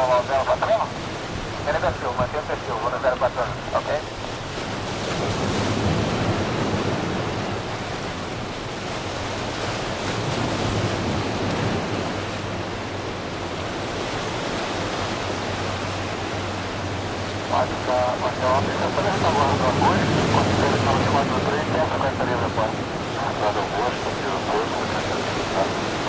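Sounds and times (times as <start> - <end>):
helicopter rotor wash: 15.1 - 26.0.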